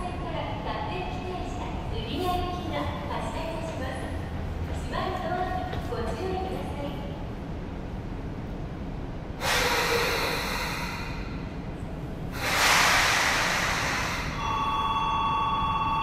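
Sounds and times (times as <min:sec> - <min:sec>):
compressed air hissing from train: 0:09.4 - 0:11.6, 0:12.3 - 0:14.5
two-tone electronic signal: 0:14.4 - 0:16.0.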